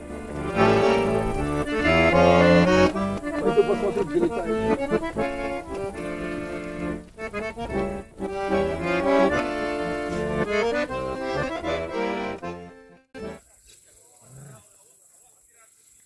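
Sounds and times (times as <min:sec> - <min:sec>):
accordion folk tune: 0:00.0 - 0:13.5.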